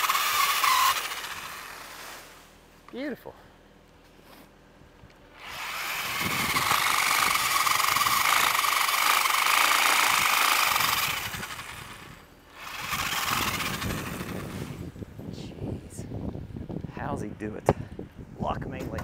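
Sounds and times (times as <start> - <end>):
pole saw chain whining: 0.0 - 1.9, 5.4 - 14.8.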